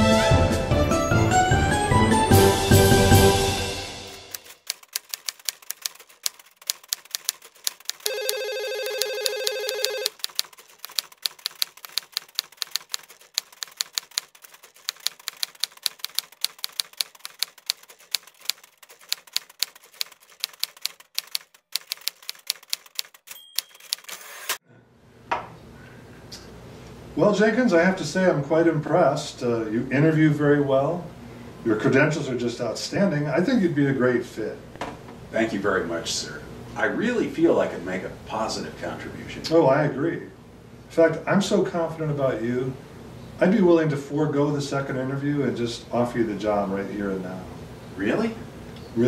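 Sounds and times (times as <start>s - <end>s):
rapid typing clicks: 4.2s - 24.6s
short high ding: 23.3s - 23.8s.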